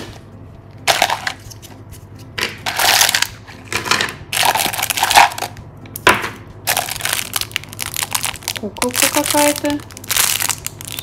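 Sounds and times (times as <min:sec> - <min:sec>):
cellophane wrappers crinkling: 0:04.4 - 0:05.6, 0:06.7 - 0:11.0.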